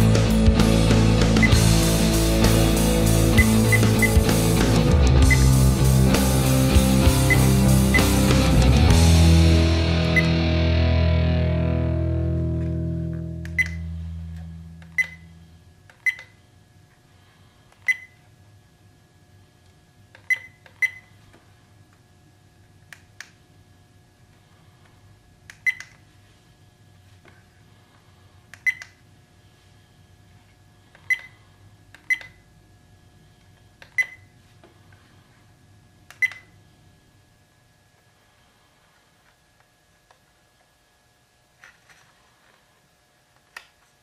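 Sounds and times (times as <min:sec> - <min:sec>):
music: 0:00.0 - 0:14.7
button press click: 0:12.6 - 0:15.2
keypad button clicks: 0:13.5 - 0:13.8, 0:14.8 - 0:15.2
brief beeps: 0:13.5 - 0:13.9, 0:14.8 - 0:15.4.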